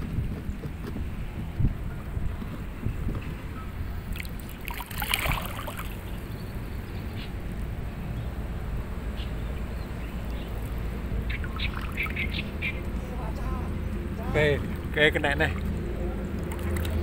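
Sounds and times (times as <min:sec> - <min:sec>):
wind rumble on microphone: 0:00.0 - 0:17.0
water sloshing and splashing: 0:04.0 - 0:06.4, 0:10.0 - 0:17.0.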